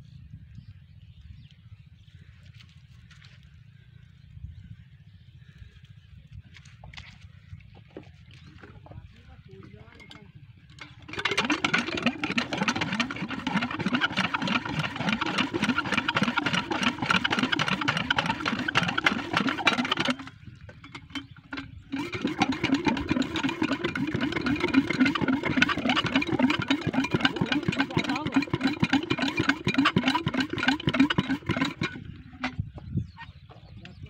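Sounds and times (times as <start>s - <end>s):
diesel engine chugging: 8.1s - 34.0s.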